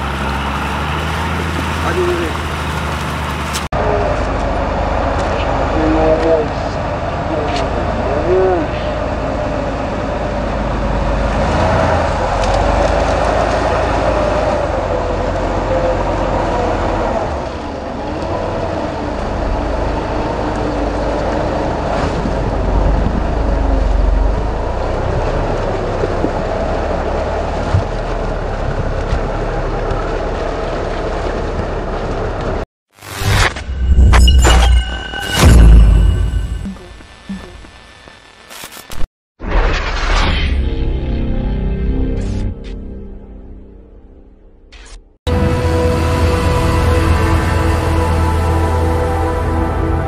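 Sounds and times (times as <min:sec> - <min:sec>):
off-road engines revving in mud: 0:00.0 - 0:32.6.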